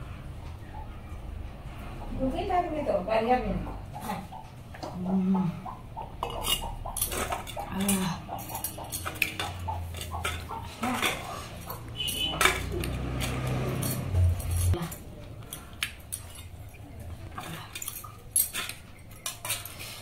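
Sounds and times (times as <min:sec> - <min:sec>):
steel dishes clinking and scraping: 0:06.2 - 0:20.0.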